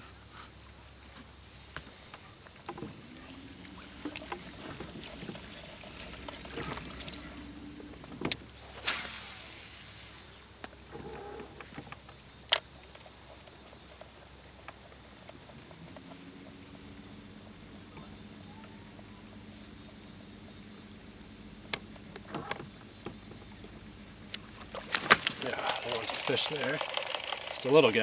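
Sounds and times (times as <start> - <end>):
fishing line rushing off spool: 2.7 - 10.5, 24.8 - 28.0
fishing reel clicks: 25.6 - 28.0.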